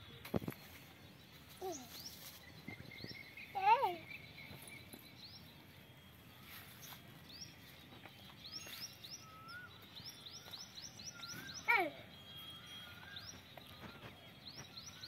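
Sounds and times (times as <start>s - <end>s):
birds chirping: 0.0s - 15.0s
soft bird whistles: 8.6s - 9.8s.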